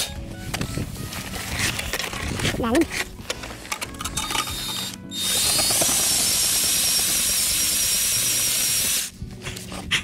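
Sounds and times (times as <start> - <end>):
ice auger grinding with motor whine: 4.3 - 9.1.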